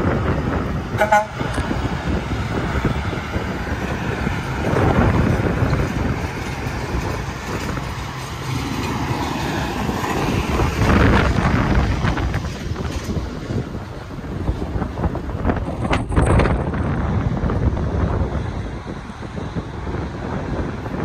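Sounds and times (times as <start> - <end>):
highway traffic passing: 0.0 - 21.0
wind buffeting microphone: 0.0 - 21.0.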